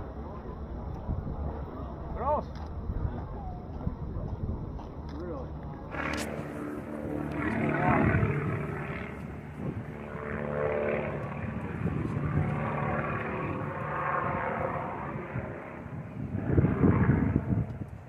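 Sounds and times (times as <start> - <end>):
airplane piston engine droning: 4.9 - 18.0.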